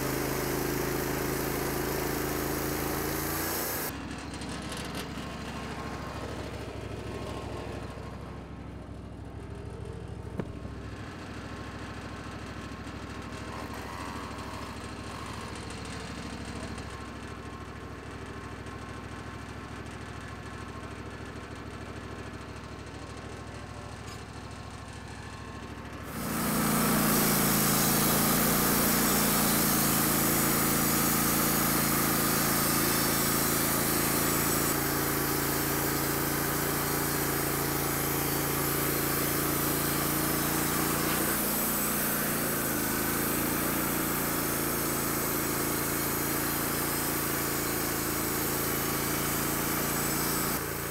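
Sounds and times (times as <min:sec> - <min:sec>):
band saw cutting log: 0:00.0 - 0:03.9, 0:26.1 - 0:50.9
engine idling: 0:00.0 - 0:50.9.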